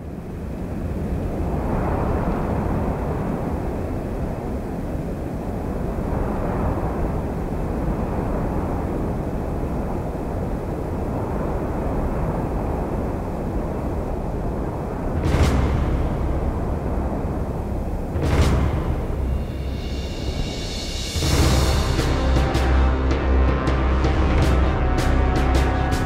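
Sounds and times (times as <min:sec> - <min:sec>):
low rumble: 0:13.9 - 0:26.0
deep boom: 0:15.1 - 0:26.0.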